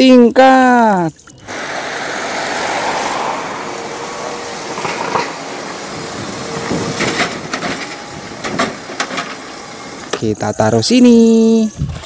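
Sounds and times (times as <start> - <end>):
traffic and road noise: 1.3 - 11.0
bus engine running: 1.5 - 10.4.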